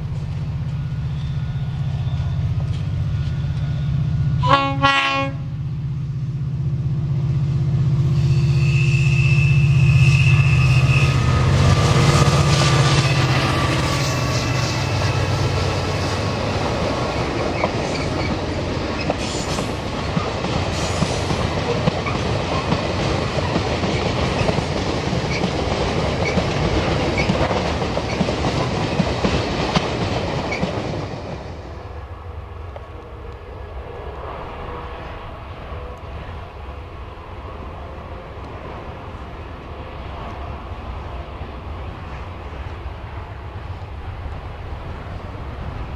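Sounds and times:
diesel locomotive drone: 0.0 - 45.9
train wheels clattering over rail joints: 12.1 - 31.6.

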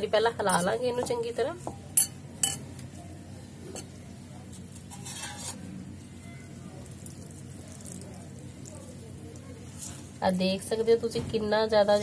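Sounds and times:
rustling scrape of wet shreds: 4.5 - 5.7, 9.6 - 10.2.

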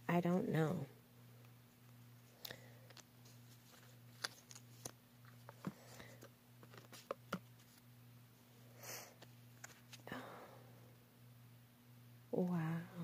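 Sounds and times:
steady low hum: 0.0 - 13.0
cards flipping with soft clicks: 1.9 - 7.9, 9.2 - 10.0.

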